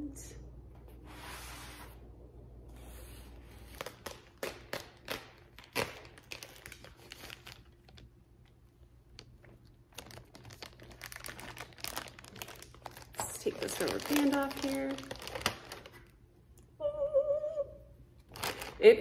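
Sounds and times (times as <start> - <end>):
paper and plastic crinkling: 3.3 - 16.1, 18.3 - 19.0.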